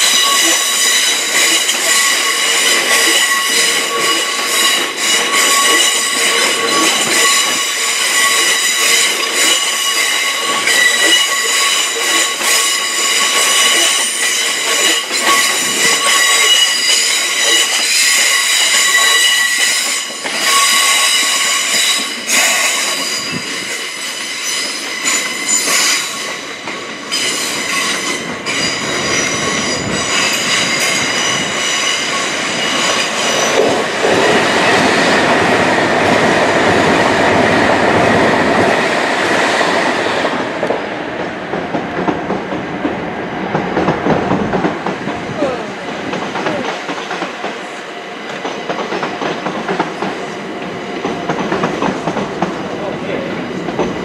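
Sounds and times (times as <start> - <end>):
train wheels squealing: 0.0 - 35.2
train running noise: 0.0 - 54.0
wheels clicking over rail joints: 48.3 - 54.0.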